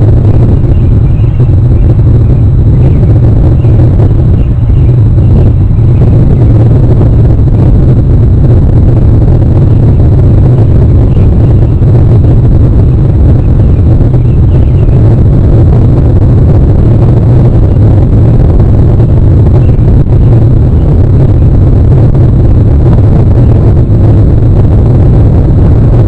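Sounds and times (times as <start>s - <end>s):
loud low rumble: 0.0s - 26.0s.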